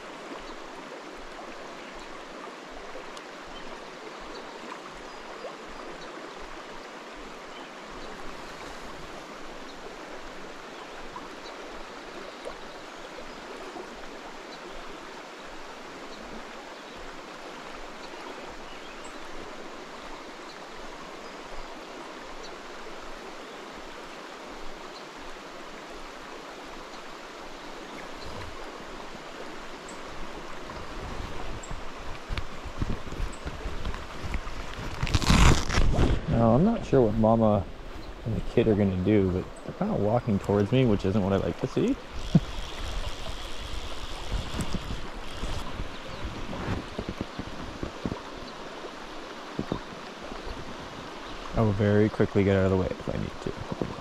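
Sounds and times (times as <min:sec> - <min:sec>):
river current rushing: 0:00.0 - 0:54.0
wind buffeting microphone: 0:30.8 - 0:36.8, 0:42.1 - 0:48.3.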